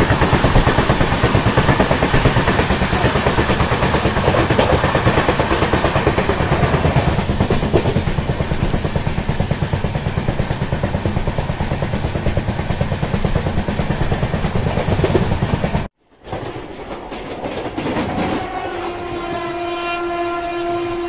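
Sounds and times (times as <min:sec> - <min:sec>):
train rumbling and rattling: 0:00.0 - 0:21.0
train horn: 0:18.0 - 0:21.0.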